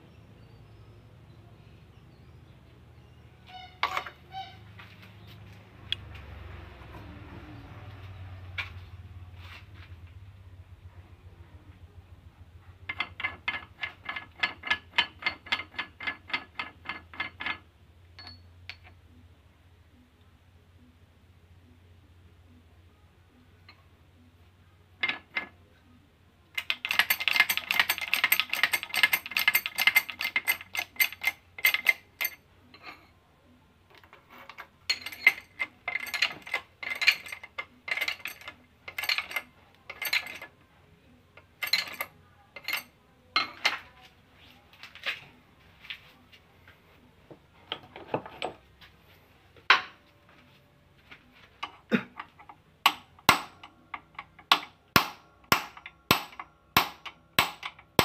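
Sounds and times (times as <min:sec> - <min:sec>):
metal parts clinking and rattling: 0:03.5 - 0:04.5, 0:12.9 - 0:19.0, 0:25.0 - 0:25.6, 0:26.5 - 0:33.1, 0:33.9 - 0:40.6, 0:41.4 - 0:44.0.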